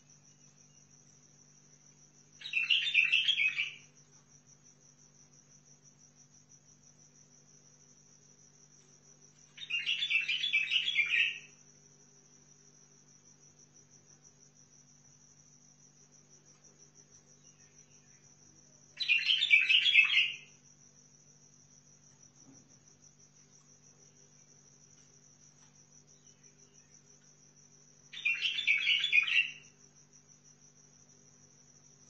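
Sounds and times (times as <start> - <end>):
bird singing warbling phrases: 2.4 - 3.8, 9.6 - 11.5, 19.0 - 20.5, 28.2 - 29.6.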